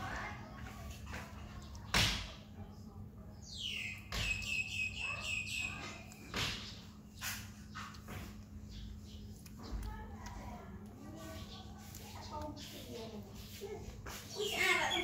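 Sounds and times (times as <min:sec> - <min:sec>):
high chirping animal call: 0:03.5 - 0:06.3.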